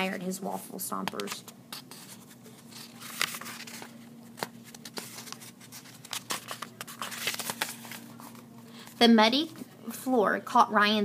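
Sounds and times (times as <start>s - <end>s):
faint steady hum: 0.0s - 11.0s
book pages flipping: 1.0s - 9.7s.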